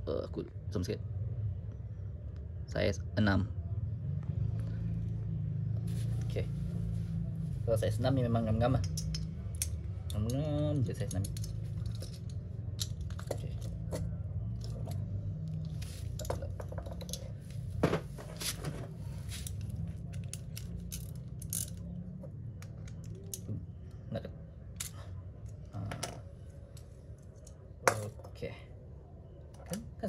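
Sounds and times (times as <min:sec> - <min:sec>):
metallic clicks of tools handled: 0:08.8 - 0:14.0.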